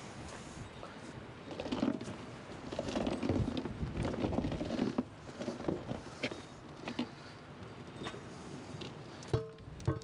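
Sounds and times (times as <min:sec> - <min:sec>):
rubber tire scraping: 0:01.4 - 0:09.0.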